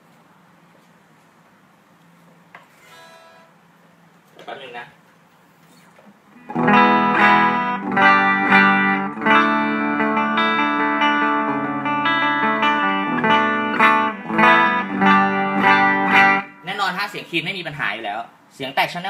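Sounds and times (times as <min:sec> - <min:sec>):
clean electric guitar: 0:06.3 - 0:16.7.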